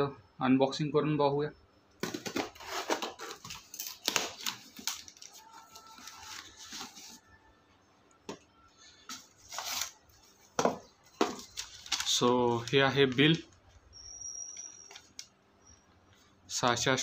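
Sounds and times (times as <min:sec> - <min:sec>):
packing tape being cut: 0:02.2 - 0:05.9, 0:09.5 - 0:10.0.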